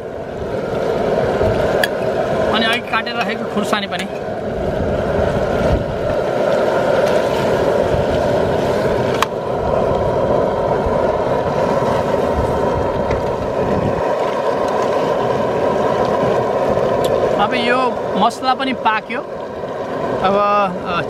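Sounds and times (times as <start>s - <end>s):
burner flame roar: 0.0s - 21.0s.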